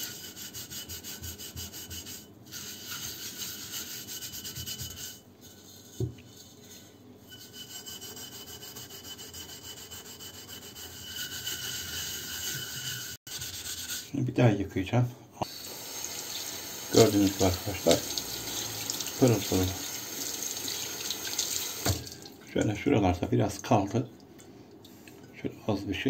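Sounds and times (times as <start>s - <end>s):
steel wool scrubbing metal: 0.0s - 14.2s, 15.6s - 21.2s.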